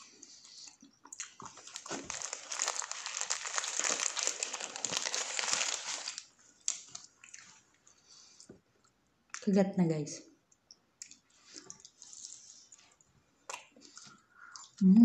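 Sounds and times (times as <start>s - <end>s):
paper wrapper crinkling: 1.2s - 7.4s.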